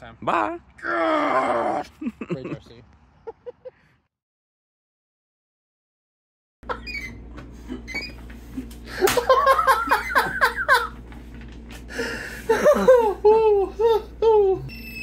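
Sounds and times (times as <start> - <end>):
man laughing: 1.6 - 3.9, 8.6 - 11.0, 11.9 - 14.7
steady low hum: 6.7 - 15.0.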